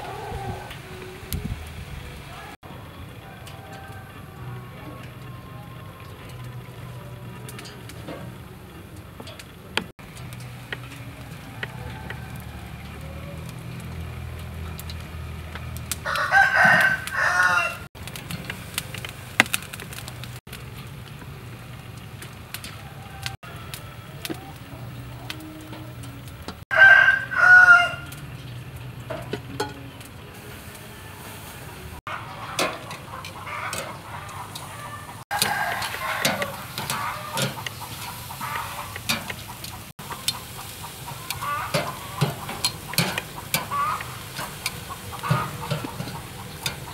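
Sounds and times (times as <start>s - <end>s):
rooster crowing: 0.0s - 1.4s, 2.3s - 8.2s, 10.9s - 14.8s, 15.8s - 17.9s, 22.5s - 28.2s, 30.4s - 39.3s, 40.0s - 46.9s.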